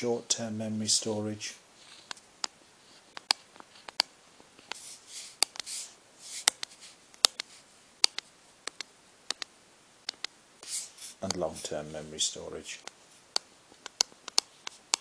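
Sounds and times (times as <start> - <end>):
stylus tapping on touchscreen: 2.4 - 4.1, 6.4 - 9.5, 12.8 - 15.0
stylus scratching strokes: 4.6 - 7.6, 10.6 - 11.8.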